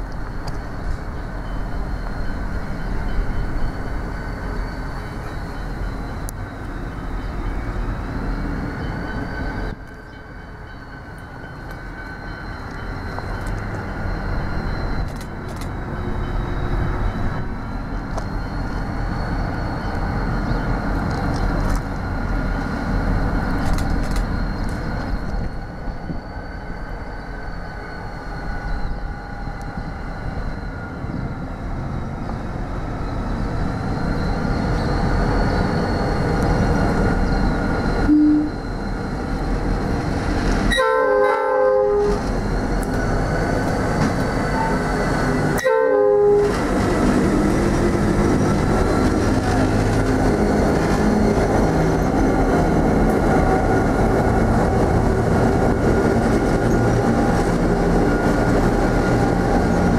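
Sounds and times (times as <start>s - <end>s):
train wheels clicking: 0.0s - 26.2s, 42.0s - 45.7s, 46.4s - 59.9s
high wavering whine: 0.0s - 59.9s
locomotive engine rumble: 0.0s - 59.9s.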